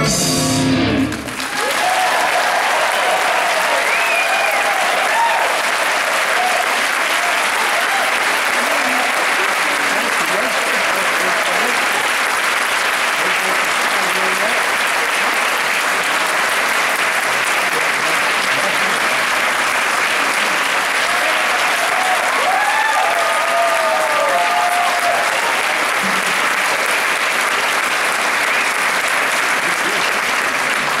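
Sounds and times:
audience applauding: 0.8 - 31.0
audience cheers: 1.0 - 9.8, 20.8 - 26.9.

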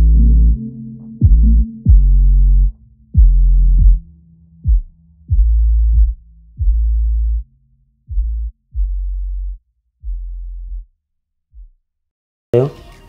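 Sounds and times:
electronic music with deep bass: 0.0 - 10.8.

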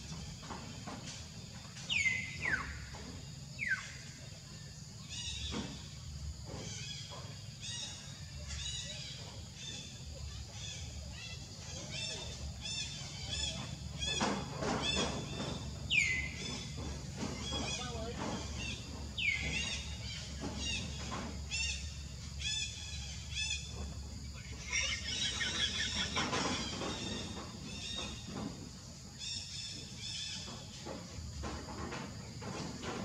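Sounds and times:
high-pitched animal calls: 24.4 - 26.9.

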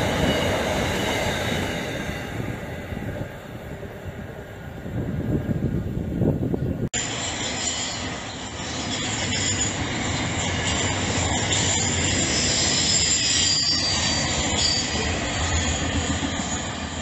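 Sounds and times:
train wheels rumbling on rails: 0.0 - 17.0
high wheel squeal: 7.0 - 17.0.

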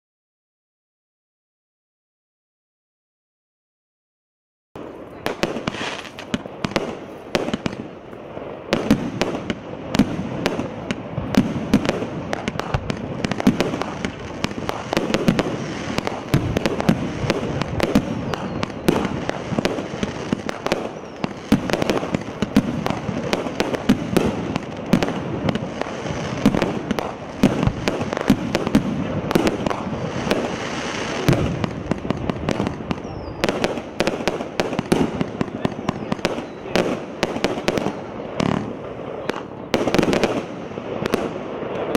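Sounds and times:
firework bangs and launch thumps: 8.7 - 38.7.

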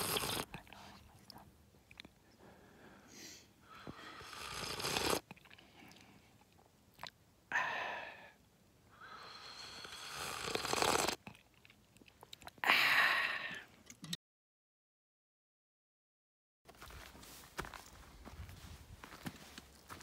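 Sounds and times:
slurping sips from a mug: 0.0 - 0.6, 4.0 - 6.0, 9.3 - 11.4.

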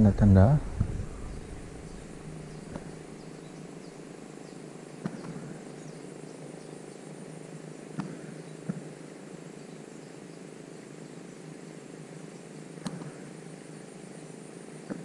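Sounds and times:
low droning hum: 0.0 - 7.4
high insect buzz: 0.5 - 15.0.

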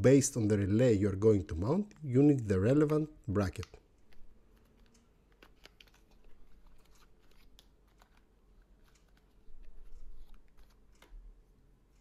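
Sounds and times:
packaging rustling and crinkling: 4.1 - 11.2.

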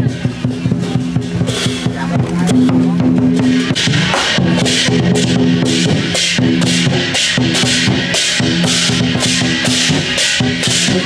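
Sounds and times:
drum kit beat: 0.0 - 11.0.

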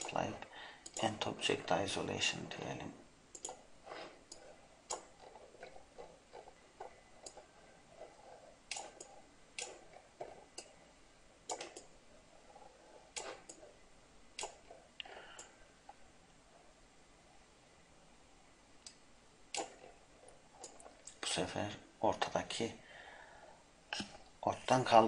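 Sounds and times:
soft rustling of mouse moving: 0.0 - 17.4, 19.6 - 22.8
computer mouse clicks: 0.8 - 1.2, 3.3 - 3.7, 4.3 - 10.8, 11.5 - 11.9, 12.5 - 13.8, 14.4 - 15.6, 18.8 - 21.2.

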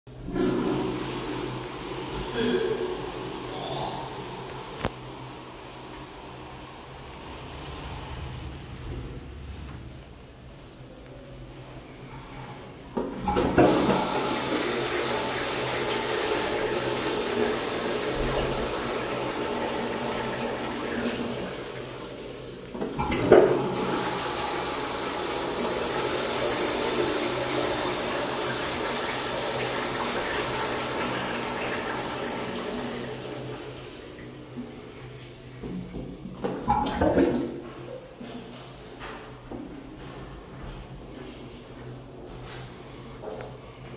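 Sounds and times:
toilet flushing water rush: 0.1 - 9.2, 13.0 - 37.8.

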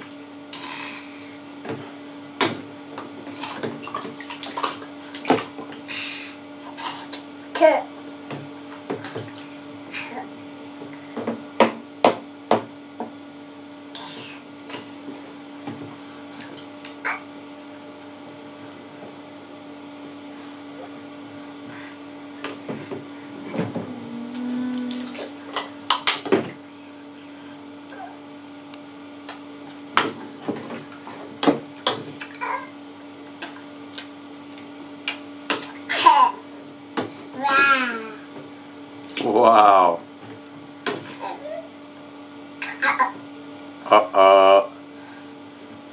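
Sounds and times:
steady low hum: 0.0 - 45.9
bath water splashing: 1.8 - 5.9, 8.6 - 9.7, 22.2 - 26.6
low hum: 20.3 - 29.1.

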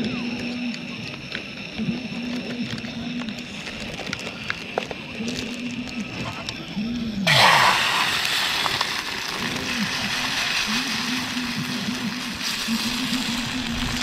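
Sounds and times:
eggs sizzling in hot pan: 7.2 - 14.0.

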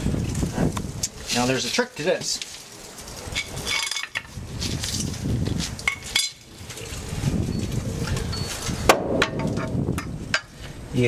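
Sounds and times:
metal brake parts clinking: 3.4 - 4.3.

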